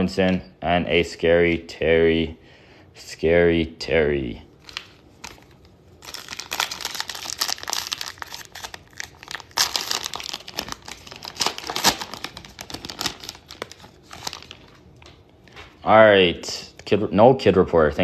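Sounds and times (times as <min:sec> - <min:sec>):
plastic wrapper tearing and crinkling: 0:04.6 - 0:15.2.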